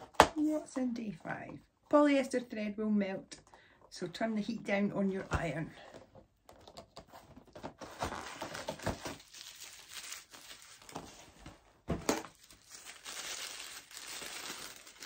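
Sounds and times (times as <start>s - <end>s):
paper crinkling and rustling: 6.6s - 15.0s.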